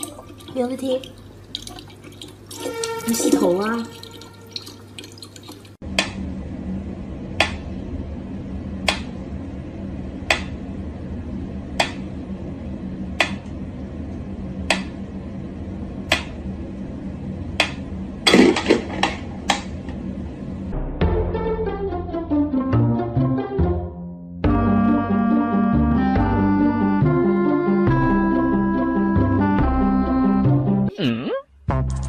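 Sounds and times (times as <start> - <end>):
water trickling from faucet: 0.0 - 5.8
low hum: 5.8 - 22.6.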